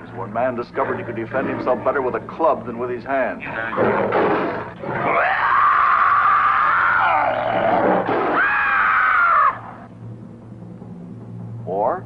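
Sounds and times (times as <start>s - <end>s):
loud cartoon screams: 5.0s - 9.8s.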